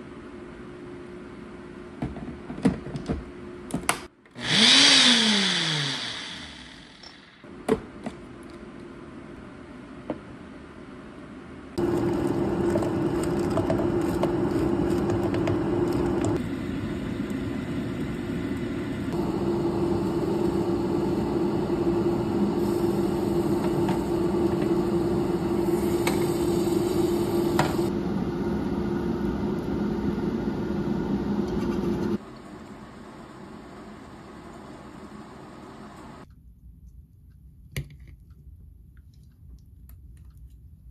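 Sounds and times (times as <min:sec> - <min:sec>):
blender motor hum: 0:04.3 - 0:07.4, 0:19.0 - 0:27.9.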